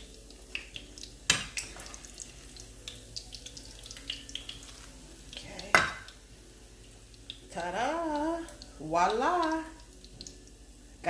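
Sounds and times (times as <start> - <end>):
oil crackling and popping: 0.0 - 6.2
frying in hot oil: 0.0 - 11.0.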